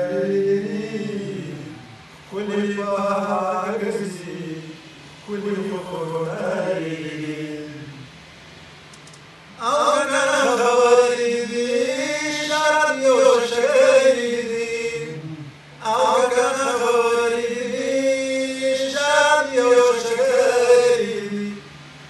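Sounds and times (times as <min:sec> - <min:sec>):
man chanting poetry: 0:00.0 - 0:08.0.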